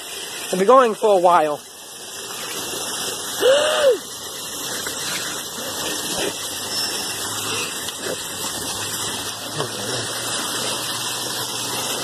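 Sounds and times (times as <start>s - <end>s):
floodwater gushing: 0.0s - 12.0s
short squeal: 6.6s - 7.4s.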